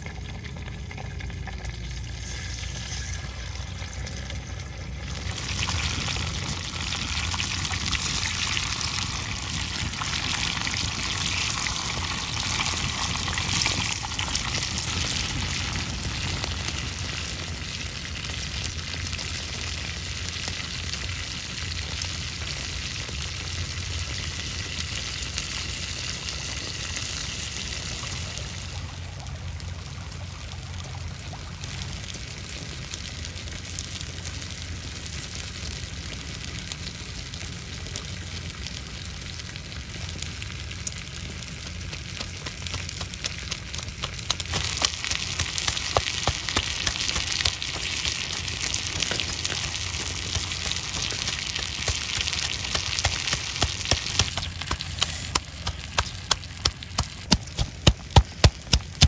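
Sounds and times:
pestle pounding in mortar: 42.4 - 48.0, 50.3 - 59.0.

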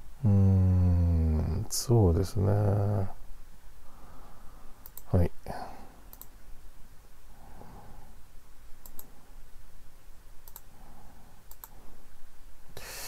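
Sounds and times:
computer mouse clicking: 4.8 - 5.1, 6.1 - 6.4, 8.8 - 9.1, 10.4 - 10.7, 11.5 - 11.8.

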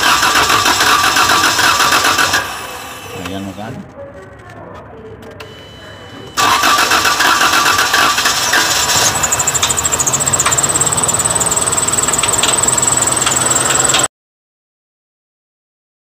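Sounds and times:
car engine running loud: 0.0 - 3.2, 6.4 - 14.1
fast engine ticking: 0.0 - 3.3, 6.4 - 14.1.

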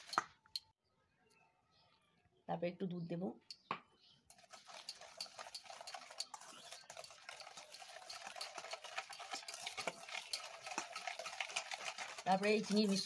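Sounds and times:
whisk clicking in glass bowl: 4.3 - 13.0.

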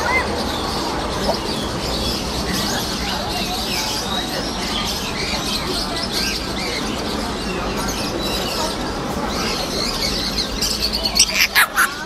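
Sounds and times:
birds chirping and twittering: 0.0 - 12.0.

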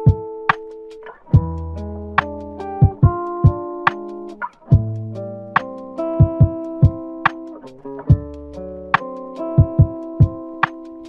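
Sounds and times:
kick drum thumps: 0.0 - 0.4, 1.4 - 4.0, 4.7 - 7.4, 8.1 - 10.8
background music with drum beat: 0.0 - 11.0.

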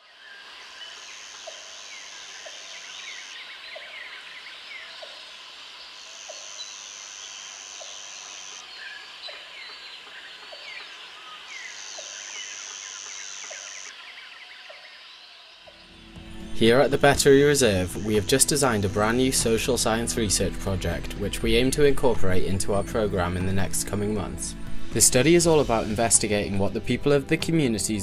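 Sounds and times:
chorus of bird calls: 0.0 - 16.0
high insect buzz: 0.1 - 19.4.

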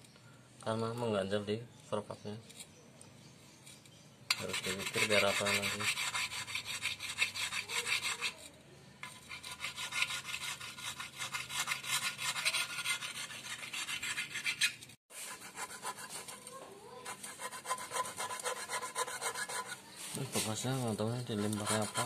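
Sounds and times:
file rasping on metal: 4.3 - 19.9, 21.1 - 22.0.

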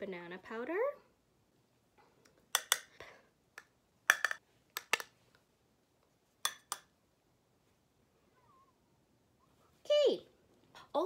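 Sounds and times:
plastic clicks and taps: 2.5 - 2.9, 3.6 - 5.1.

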